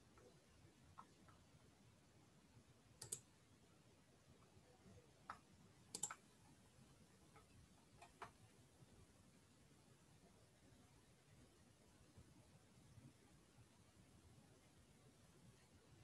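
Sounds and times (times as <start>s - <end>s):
computer mouse clicks: 3.0s - 3.3s, 5.2s - 6.3s, 7.3s - 8.4s.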